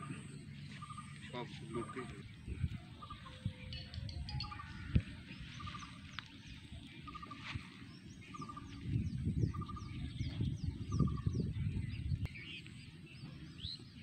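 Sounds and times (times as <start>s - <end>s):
bird trilled call: 2.9s - 6.4s, 8.1s - 11.6s.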